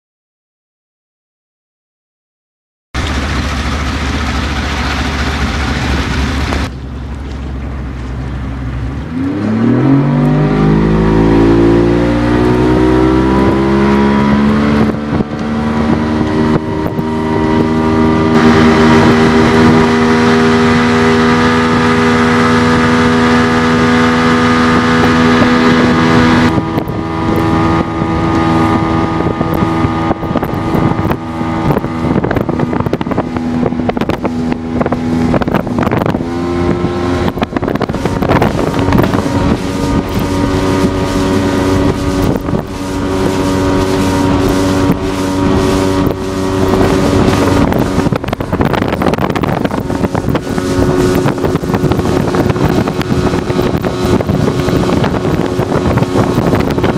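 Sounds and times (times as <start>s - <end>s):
outboard motor at high speed: 3.0s - 56.9s
wind noise on microphone: 3.0s - 56.9s.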